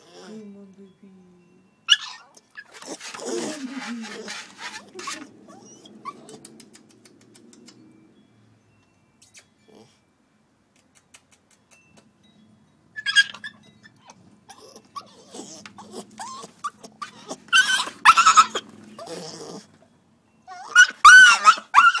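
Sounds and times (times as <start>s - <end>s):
puppy whining and crying: 0.0s - 0.4s, 1.8s - 8.0s, 13.0s - 22.0s.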